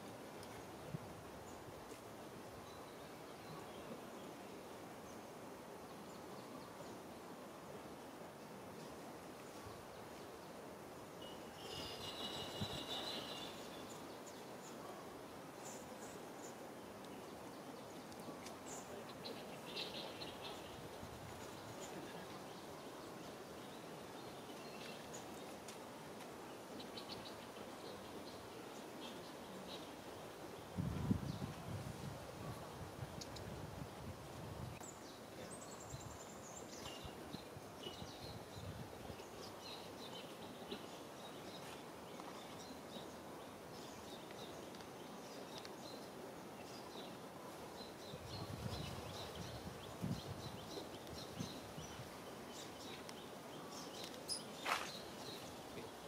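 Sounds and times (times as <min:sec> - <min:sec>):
faint background noise: 0:00.0 - 0:56.0
hiss and rumble of background noise: 0:00.0 - 0:56.0
faint high chirps: 0:11.2 - 0:14.0.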